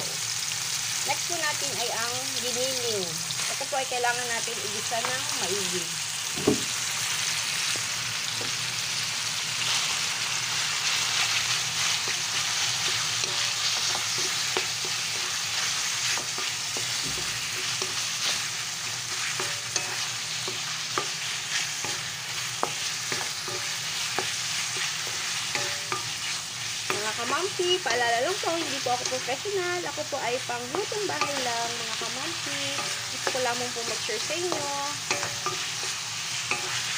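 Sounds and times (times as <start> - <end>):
meat sizzling in a wok: 0.0 - 36.9
spatula tapping and scraping pan: 12.0 - 18.5, 19.1 - 36.9.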